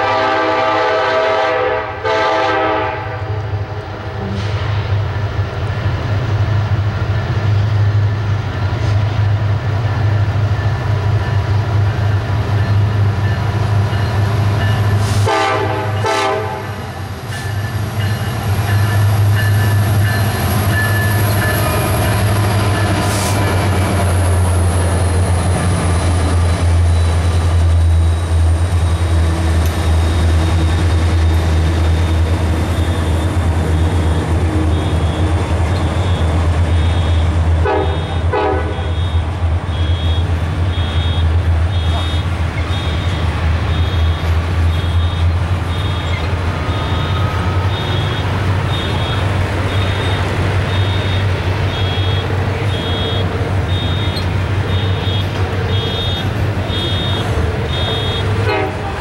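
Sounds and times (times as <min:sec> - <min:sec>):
train horn blast: 0:00.0 - 0:04.6, 0:14.8 - 0:17.0, 0:36.0 - 0:59.0
diesel locomotive engine rumble: 0:00.0 - 0:59.0
train wheel and rail noise: 0:00.0 - 0:59.0.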